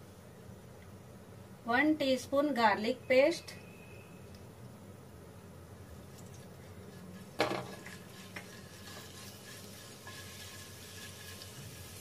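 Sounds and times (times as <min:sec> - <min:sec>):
spatula stirring in frying pan: 0:06.0 - 0:12.0
utensil knocking against pan: 0:07.4 - 0:08.5.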